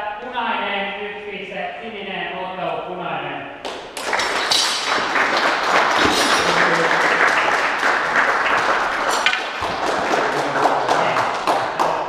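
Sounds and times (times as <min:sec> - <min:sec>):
audience applauding: 0:03.7 - 0:12.0.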